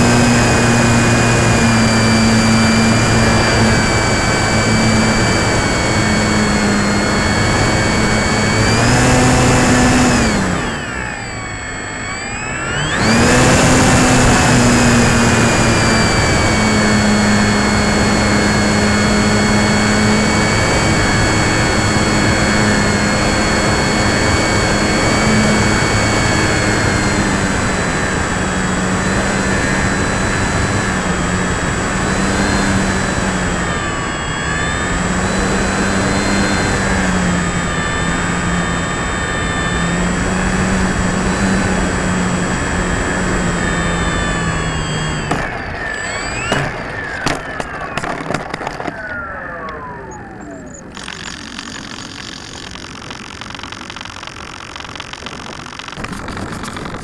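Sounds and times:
electric motor whine: 0.0 - 57.0
wind rush on microphone: 55.4 - 57.0.

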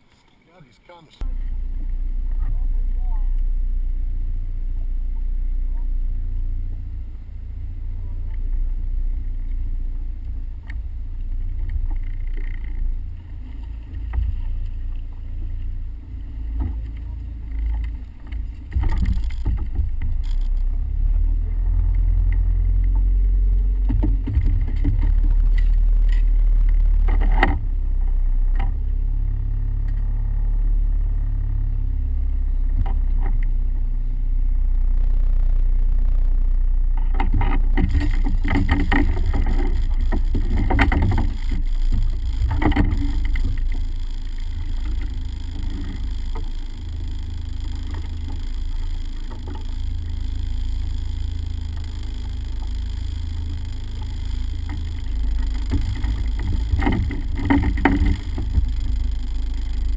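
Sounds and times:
boat engine low rumble: 0.0 - 59.9
fishing gear knocking and clattering: 37.1 - 46.6.

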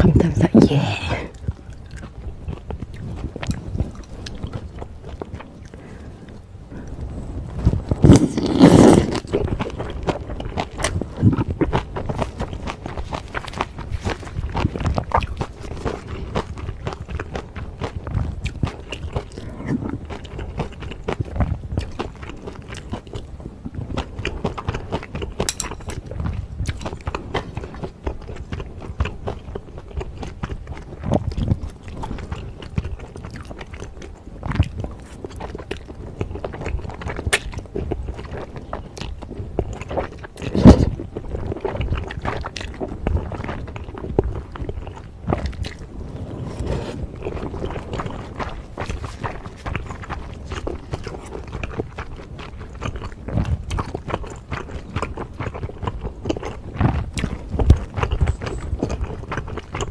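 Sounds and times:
chewing: 1.1 - 7.1, 7.7 - 59.9
slurping noodles: 8.0 - 9.6, 46.1 - 49.3.

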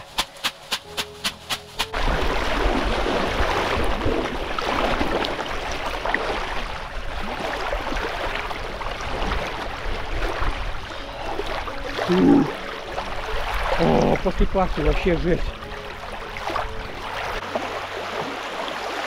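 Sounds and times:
water splashing and sloshing: 0.0 - 19.0
wind rumbling on microphone: 2.0 - 11.9.

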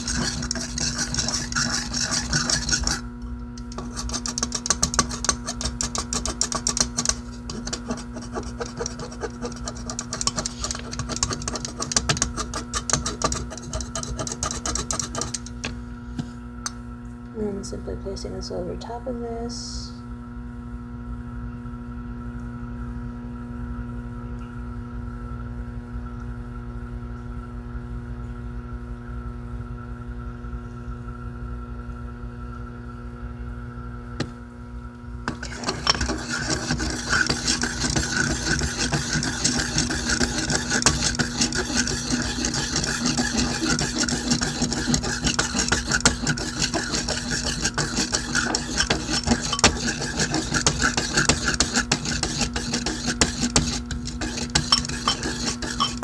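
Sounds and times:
knife blade rasping scrape: 0.0 - 15.6, 35.3 - 56.0
electrical hum: 0.0 - 56.0.

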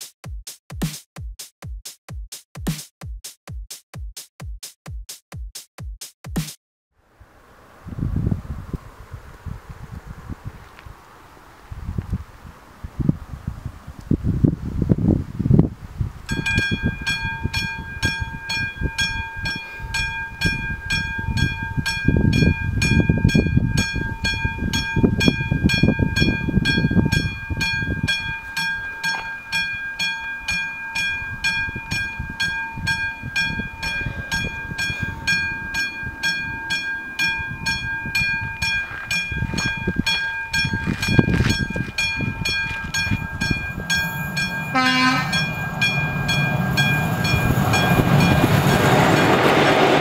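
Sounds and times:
level crossing bell ringing: 16.3 - 48.9.

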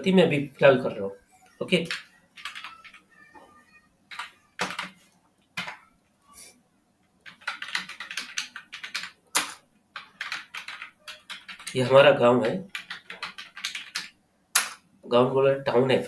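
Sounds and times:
typing on computer keyboard: 1.8 - 3.0, 4.1 - 5.0, 5.6 - 5.8, 7.2 - 14.8.

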